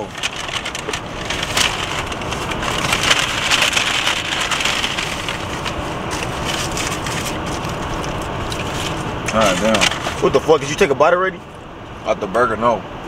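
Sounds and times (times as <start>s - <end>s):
paper bag and wrappers crinkling: 0.0s - 10.8s.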